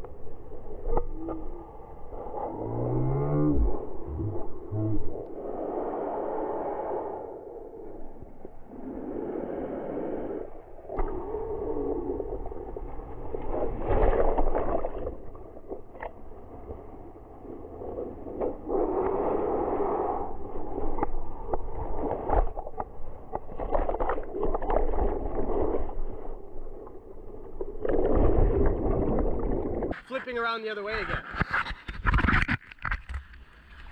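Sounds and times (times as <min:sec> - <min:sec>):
muffled water rushing and splashing: 0:00.0 - 0:30.0.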